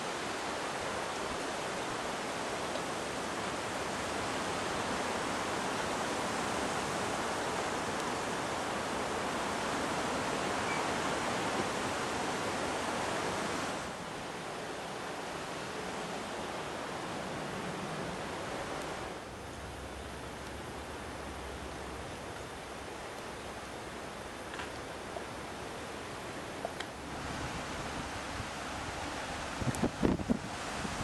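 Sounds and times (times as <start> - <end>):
strong gusty wind: 27.0 - 31.0.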